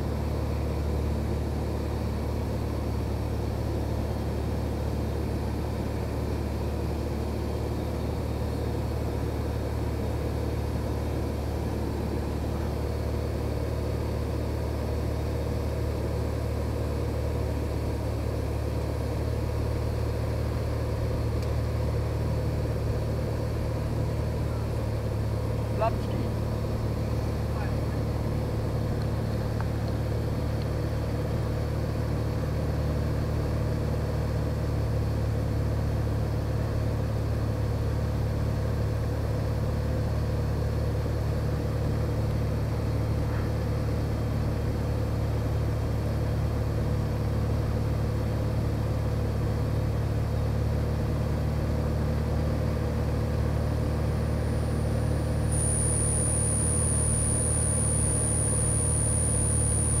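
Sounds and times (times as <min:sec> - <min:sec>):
airplane engine and propeller droning: 0:00.0 - 1:00.0
very high-pitched tone: 0:55.3 - 1:00.0.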